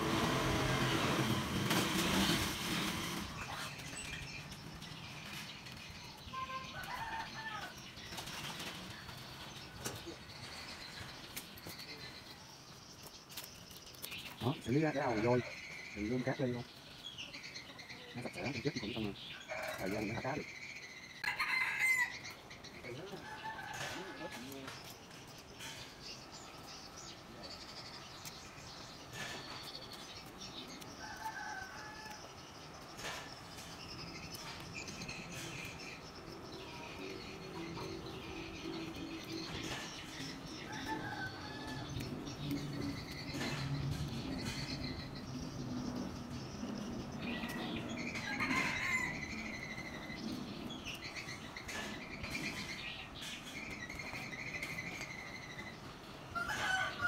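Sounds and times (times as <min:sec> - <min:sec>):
bird chirping: 0:24.0 - 0:56.2.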